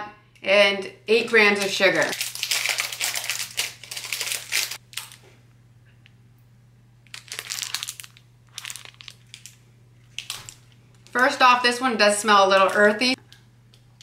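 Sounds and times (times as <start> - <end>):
foil wrapper crinkling: 1.5 - 5.2, 7.0 - 11.4.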